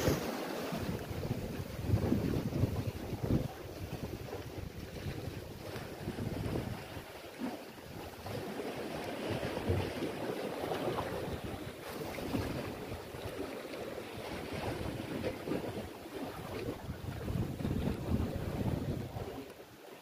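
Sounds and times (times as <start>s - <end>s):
wind gusting on microphone: 0.0s - 7.0s, 14.2s - 19.5s
sea waves washing: 0.0s - 20.0s.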